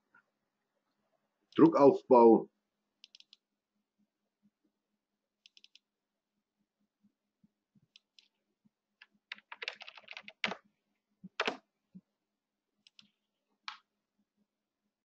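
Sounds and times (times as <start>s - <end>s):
computer keyboard typing: 3.0s - 3.4s, 5.5s - 5.8s, 9.0s - 10.6s, 11.3s - 11.6s, 12.9s - 13.1s.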